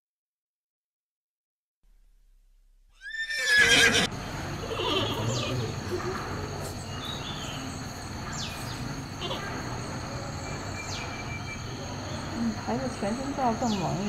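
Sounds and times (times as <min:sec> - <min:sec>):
horse whinnying: 0:03.0 - 0:05.7
steady background noise: 0:03.0 - 0:14.0.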